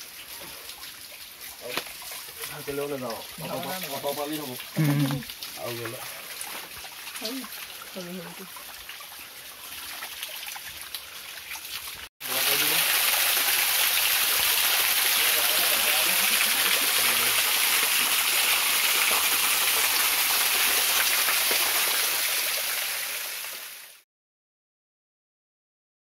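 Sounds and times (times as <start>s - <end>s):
waterfall splashing on rocks: 0.0s - 8.2s, 11.6s - 24.0s.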